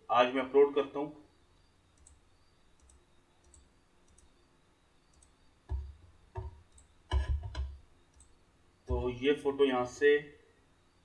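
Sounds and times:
computer mouse clicks: 1.9s - 4.4s, 5.1s - 8.4s.

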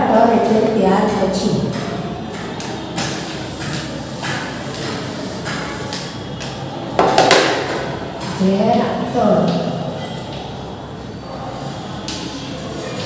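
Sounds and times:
eraser wiping chalkboard: 1.7s - 6.5s
knocks against board: 7.0s - 7.8s.

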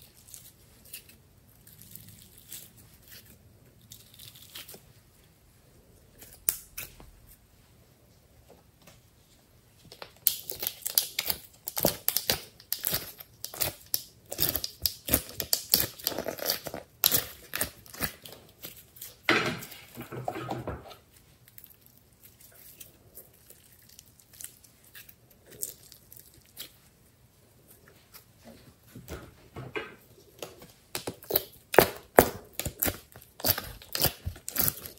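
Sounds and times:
slime squish: 30.4s - 34.9s.

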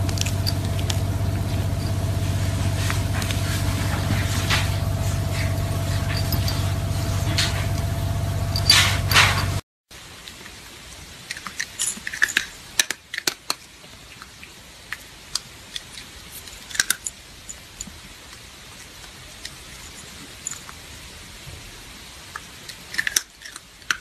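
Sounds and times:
dry kibble clicking and crackling: 0.0s - 7.9s, 10.2s - 20.9s, 22.3s - 24.0s
loud steady sound: 0.0s - 9.6s.

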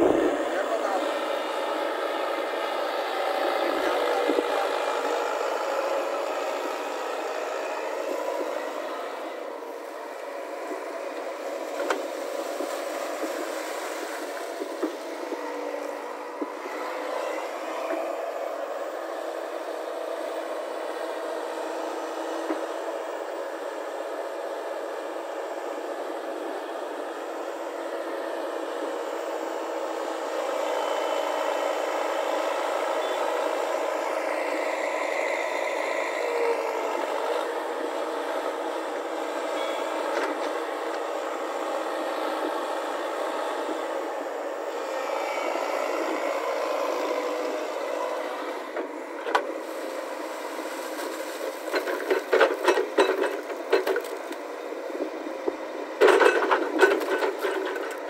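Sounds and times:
excavator engine running: 0.0s - 58.0s
bucket clanking and rattling: 51.6s - 54.1s.

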